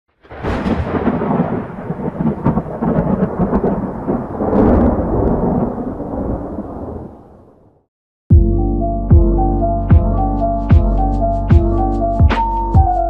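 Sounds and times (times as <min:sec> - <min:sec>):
rolling thunder rumble: 0:00.2 - 0:07.8
thunder crackles: 0:00.2 - 0:07.9.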